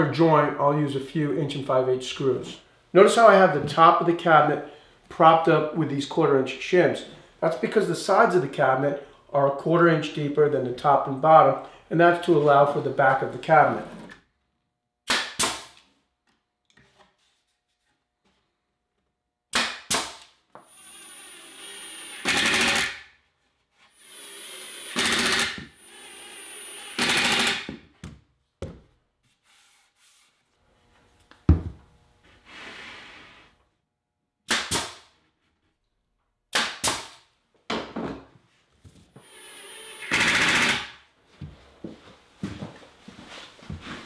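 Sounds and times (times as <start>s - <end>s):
brad nailer shots: 15.0s - 15.9s, 19.5s - 23.1s, 24.3s - 27.9s, 34.4s - 35.2s, 36.5s - 37.3s, 39.2s - 41.0s
impact driver whining and rattling: 20.6s - 23.0s, 24.1s - 27.9s, 39.2s - 41.0s.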